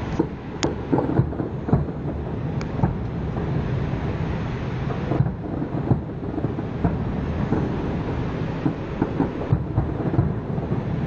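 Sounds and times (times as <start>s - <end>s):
fireworks rumbling booms: 0.0s - 11.0s
sharp firework bangs: 0.0s - 11.0s.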